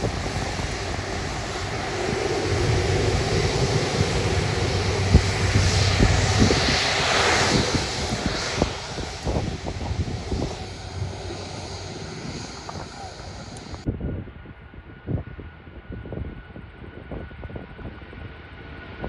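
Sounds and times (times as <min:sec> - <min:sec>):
jet engines rushing hiss: 0:00.0 - 0:13.9.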